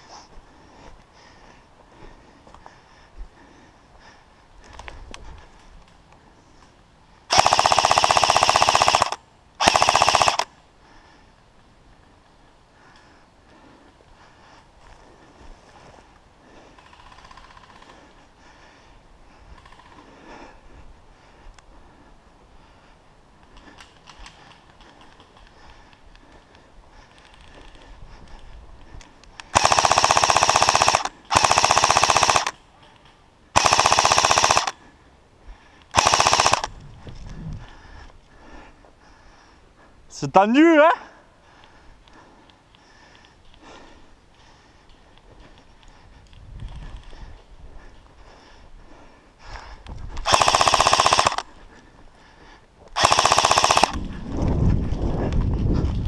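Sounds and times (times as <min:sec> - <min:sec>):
airsoft rifle firing bursts: 0:07.3 - 0:10.5, 0:29.5 - 0:32.6, 0:33.5 - 0:34.8, 0:35.9 - 0:36.7, 0:50.2 - 0:51.5, 0:52.9 - 0:54.1.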